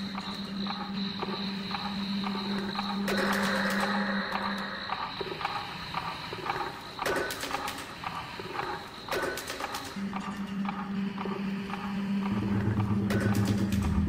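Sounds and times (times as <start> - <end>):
low drone: 0.0 - 6.8, 10.0 - 14.0
electronic knocking beat: 0.0 - 14.0
sharp clicks: 1.7 - 14.0.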